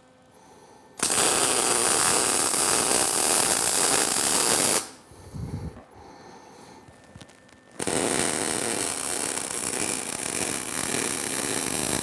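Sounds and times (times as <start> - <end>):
electric arc welding crackle: 1.0 - 5.0, 6.9 - 12.0.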